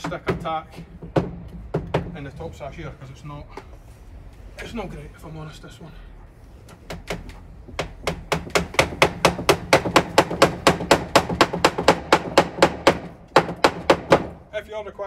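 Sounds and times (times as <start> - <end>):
hammer driving nail into wood: 6.9 - 14.4.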